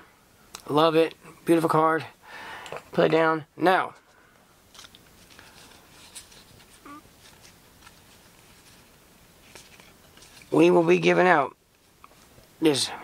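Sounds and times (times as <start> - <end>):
trading cards sliding and ticking: 4.7 - 10.6.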